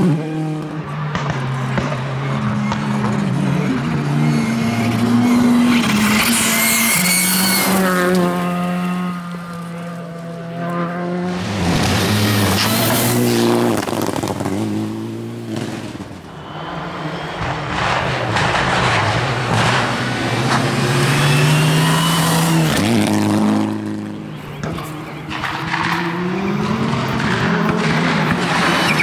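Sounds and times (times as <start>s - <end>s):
rally car engines revving: 0.0s - 29.0s
tyres on gravel: 11.4s - 29.0s.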